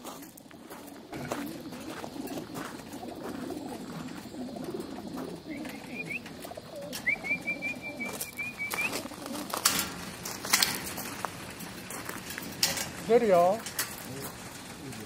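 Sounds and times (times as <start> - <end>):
pigeons cooing: 0.0 - 15.0
bird chirping trill: 3.3 - 9.1.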